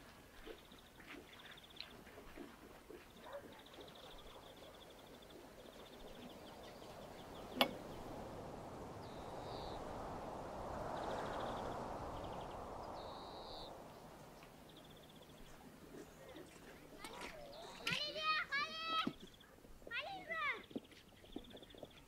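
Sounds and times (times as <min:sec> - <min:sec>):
birds trilling: 0:03.2 - 0:18.3
rushing noise: 0:06.5 - 0:15.0.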